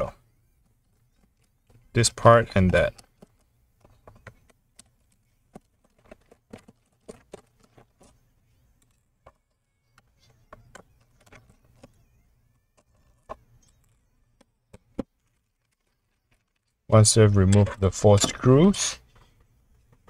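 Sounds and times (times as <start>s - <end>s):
tapping on plastic case: 0.6s - 8.2s.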